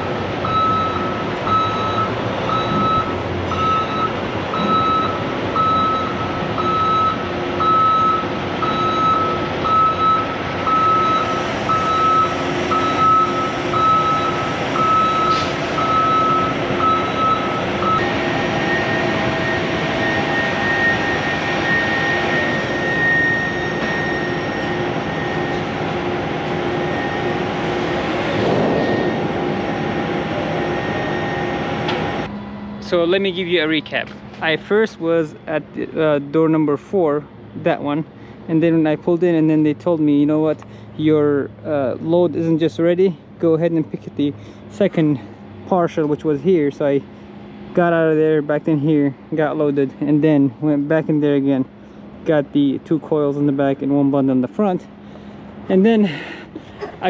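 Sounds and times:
truck engine running: 0.0 - 57.0
backup alarm beeping: 0.4 - 32.3
high-pitched whine: 10.6 - 35.2.

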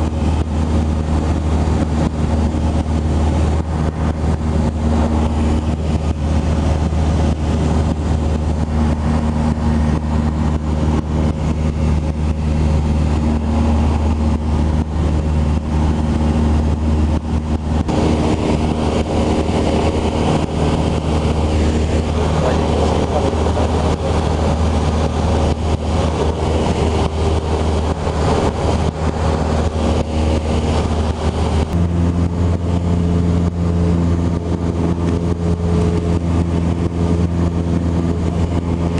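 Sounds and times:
propeller plane engine droning: 0.0 - 38.9.

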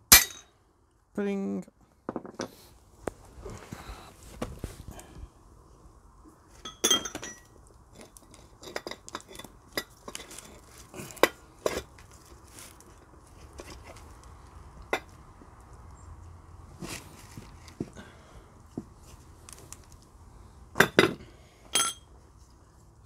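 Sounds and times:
steel parts clinking together: 21.7 - 22.1.

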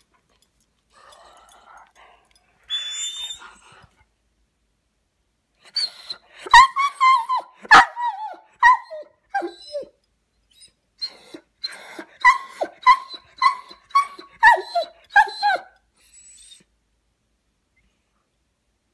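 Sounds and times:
dog whining and yipping: 2.7 - 3.8, 5.6 - 16.7.

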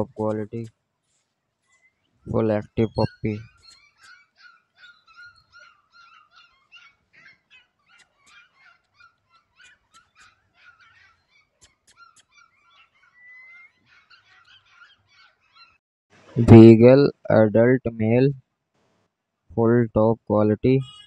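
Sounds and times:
puppies yipping and whimpering: 3.5 - 15.8.

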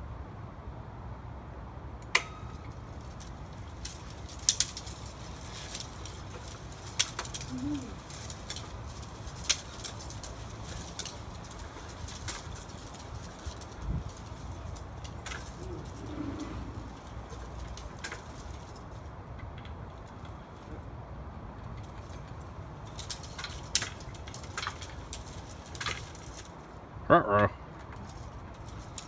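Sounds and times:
metal linkages clicking and clanking: 21.6 - 26.6.

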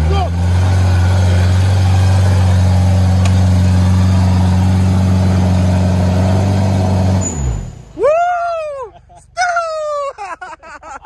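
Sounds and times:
engine at high revs: 0.0 - 8.0.

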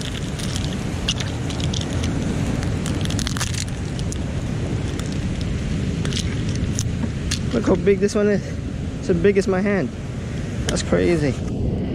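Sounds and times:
mussel shells clicking: 0.0 - 7.6
wind rumble on microphone: 0.0 - 11.9.

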